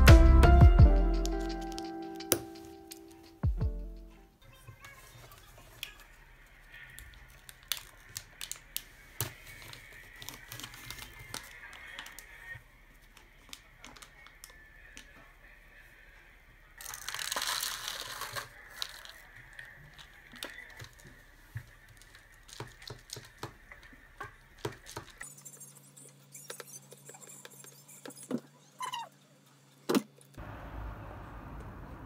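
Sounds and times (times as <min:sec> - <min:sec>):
foil lid crinkling: 0:06.9 - 0:12.3, 0:16.8 - 0:21.2.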